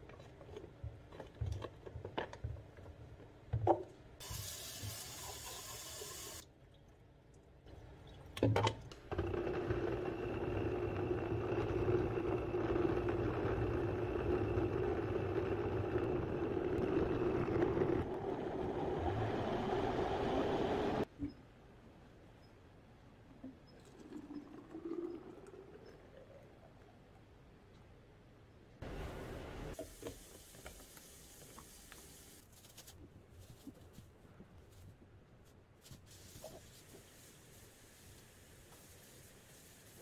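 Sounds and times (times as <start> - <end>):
blender running: 9.1 - 18.0.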